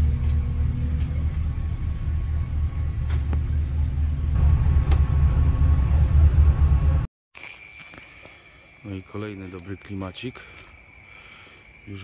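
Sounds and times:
ship engines rumbling: 0.0s - 7.1s.

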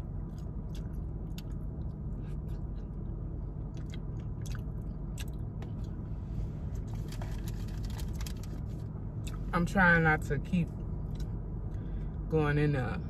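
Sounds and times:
steady low hum: 0.0s - 13.0s
chewing and lip smacking: 0.1s - 6.0s.

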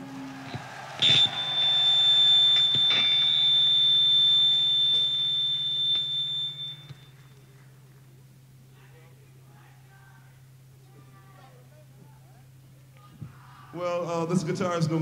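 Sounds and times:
guitar amplifier feedback whistle: 0.0s - 7.5s
low amplifier hum: 0.0s - 14.6s
amplifier click: 1.0s - 1.8s.

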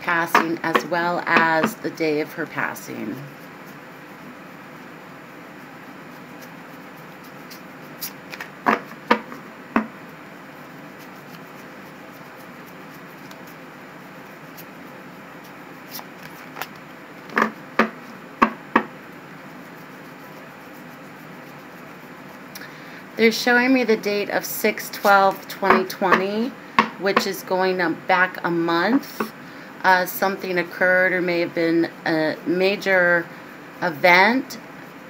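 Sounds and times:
cards being shuffled: 7.2s - 9.3s, 11.0s - 13.6s, 15.4s - 17.6s.

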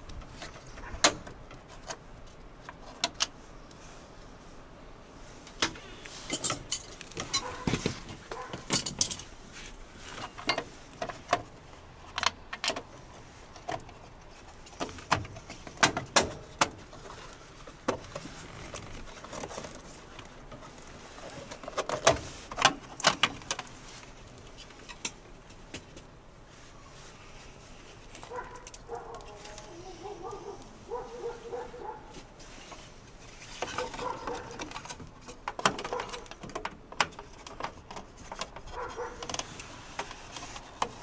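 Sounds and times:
hand tools clicking and knocking: 5.6s - 9.3s, 10.2s - 11.5s, 33.6s - 41.0s.

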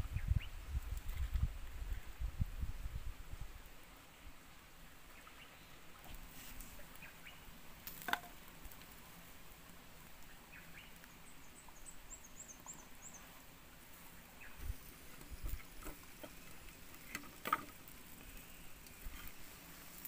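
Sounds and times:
wood fire crackling: 6.0s - 11.8s, 13.2s - 20.0s.

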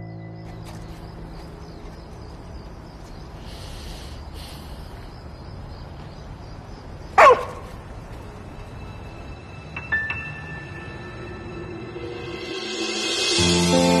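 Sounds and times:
dog barking: 7.2s - 7.7s.

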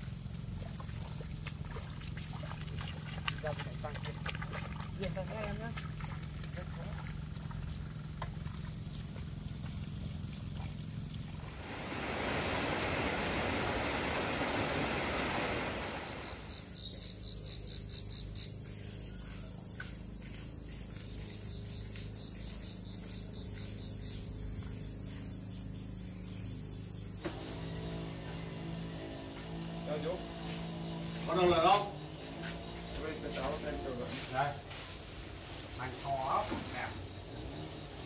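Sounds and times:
insects chirping: 0.0s - 38.0s.

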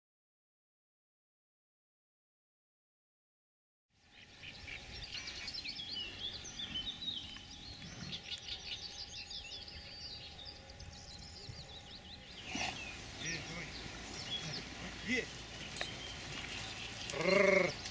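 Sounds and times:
faint outdoor background noise: 3.9s - 17.9s
songbirds singing and chirping: 4.0s - 17.9s.

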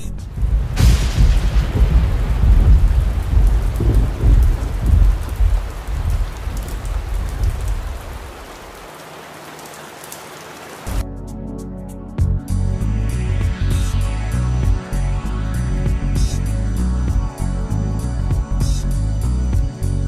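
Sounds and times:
steady rain: 0.2s - 11.0s
rolling thunder rumble: 0.3s - 8.8s.

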